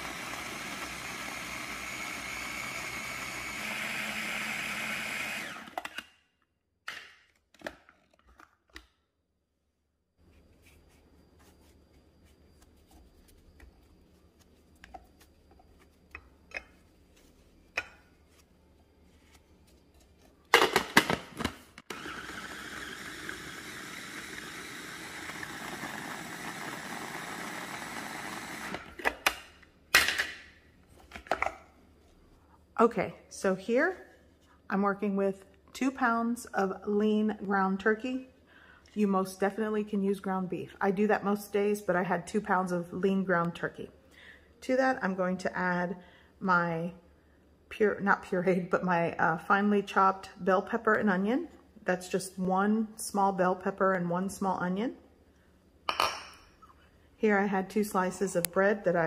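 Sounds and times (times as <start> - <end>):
food processor running: 0.0 - 6.0, 21.9 - 28.9.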